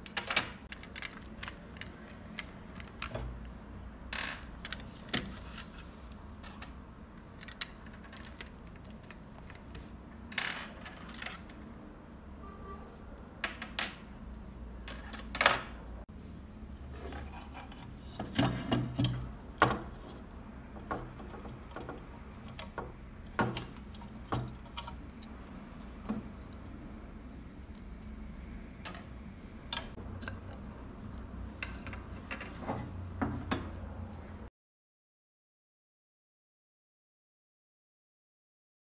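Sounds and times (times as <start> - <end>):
model parts clicking and clattering: 0.0 - 3.5, 6.4 - 10.0.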